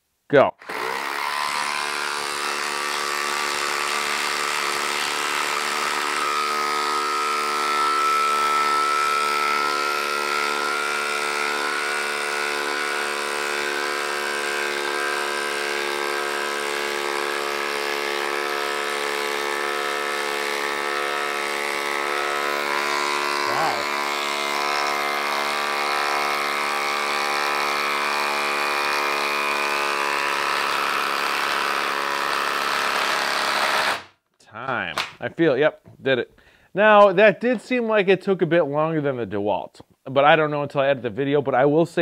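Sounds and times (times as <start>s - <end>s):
impact driver hammering: 0.6s - 34.1s.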